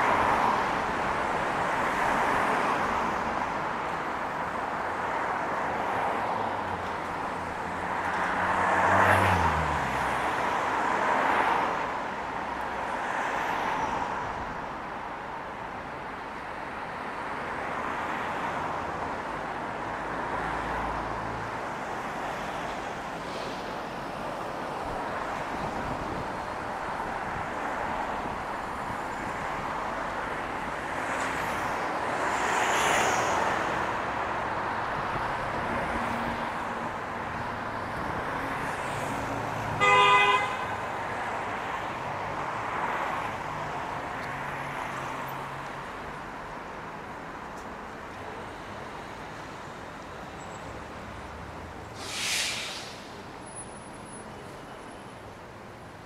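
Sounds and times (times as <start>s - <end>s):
cars passing: 0.0s - 56.0s
car horn honk: 39.8s - 40.7s
brief hiss: 51.9s - 53.3s.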